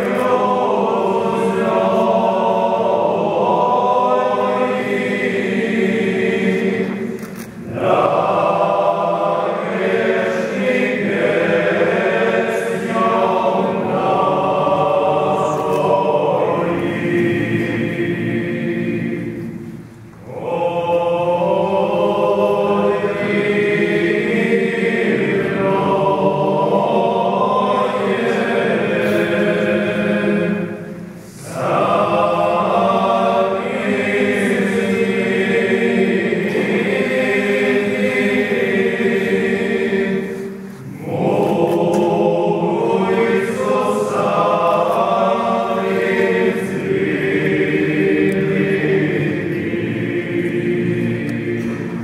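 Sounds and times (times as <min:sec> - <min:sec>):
choir singing a chant: 0:00.0 - 0:52.0.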